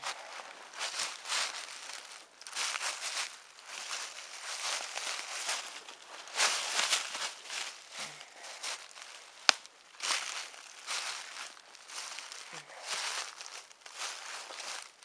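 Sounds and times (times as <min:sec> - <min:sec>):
footsteps crunching through dry leaves: 0:00.0 - 0:15.0
twig snapping: 0:09.4 - 0:10.2.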